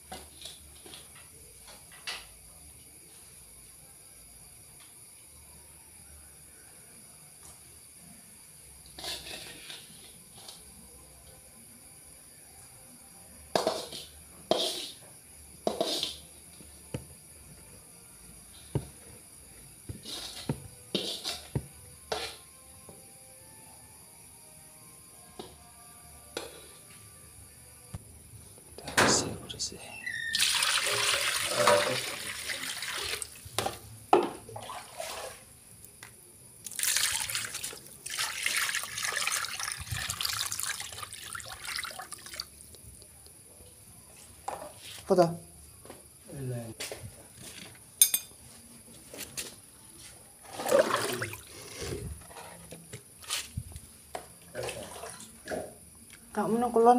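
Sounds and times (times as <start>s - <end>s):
metal spoon scraping a pot: 9.0s - 10.2s, 13.6s - 15.0s, 15.7s - 16.2s, 20.0s - 21.5s
water pouring and splashing: 30.3s - 33.7s, 34.5s - 35.5s, 36.6s - 42.7s, 50.5s - 51.9s, 54.5s - 55.4s.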